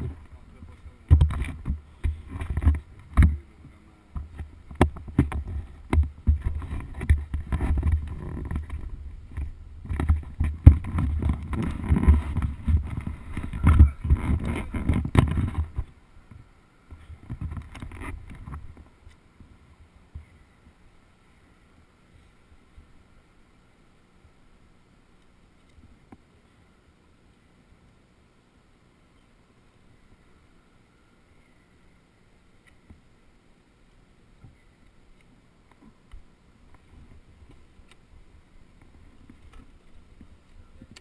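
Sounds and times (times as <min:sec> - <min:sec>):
wind buffeting microphone: 0:00.0 - 0:18.8.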